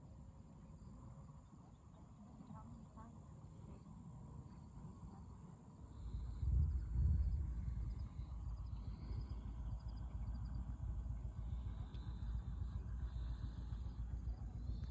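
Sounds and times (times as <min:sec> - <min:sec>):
crickets chirping: 0:00.0 - 0:14.9
wind buffeting microphone: 0:06.1 - 0:12.0.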